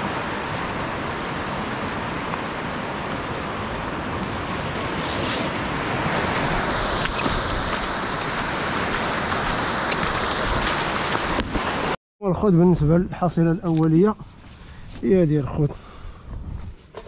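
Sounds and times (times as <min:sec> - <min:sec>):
waves breaking on beach: 0:00.0 - 0:12.0.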